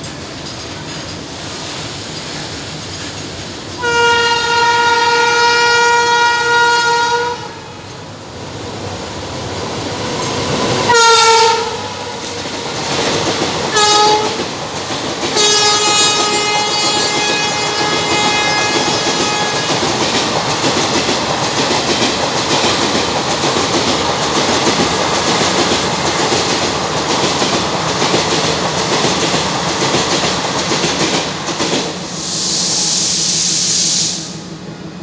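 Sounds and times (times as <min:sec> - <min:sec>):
train rumble and clatter: 0:00.0 - 0:35.0
locomotive horn blasts: 0:03.8 - 0:07.8, 0:10.9 - 0:12.2, 0:13.7 - 0:14.4, 0:15.4 - 0:19.7.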